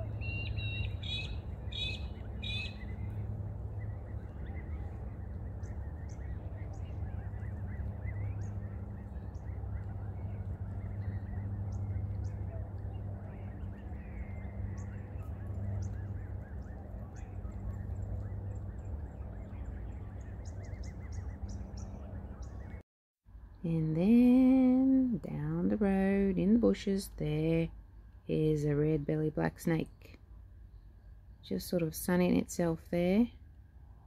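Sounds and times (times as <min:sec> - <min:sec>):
steady low hum: 0:00.0 - 0:22.8.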